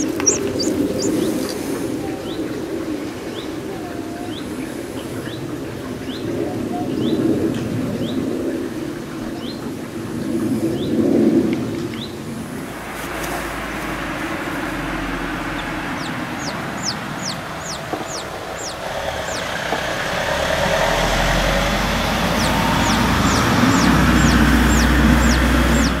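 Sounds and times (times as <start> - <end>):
chicks peeping: 0.0 - 2.6, 12.8 - 20.8, 21.6 - 26.0
rushing background noise: 0.0 - 26.0.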